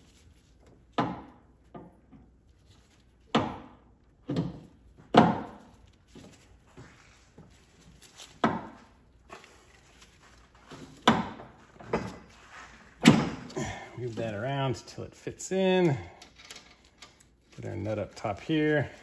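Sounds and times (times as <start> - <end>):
dull thuds on metal parts: 10.6 - 12.3, 13.0 - 13.7.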